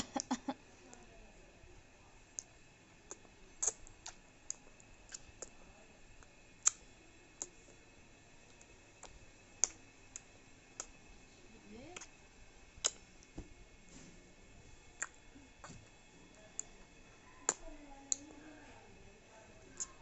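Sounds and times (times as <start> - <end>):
baby smacking lips: 12.8 - 13.4.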